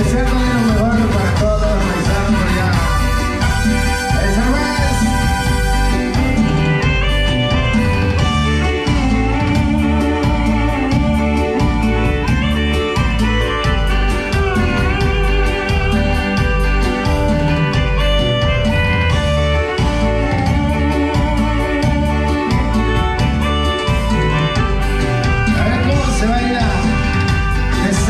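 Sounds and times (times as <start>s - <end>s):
electronic keyboard melody: 0.0s - 28.0s
percussion beat: 0.0s - 28.0s
pulsing bass line: 0.0s - 28.0s.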